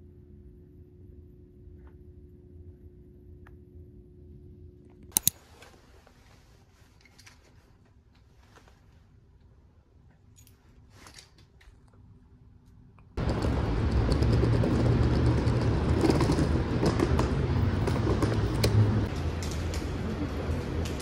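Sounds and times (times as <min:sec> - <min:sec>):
street noise rumble: 0:13.2 - 0:21.0.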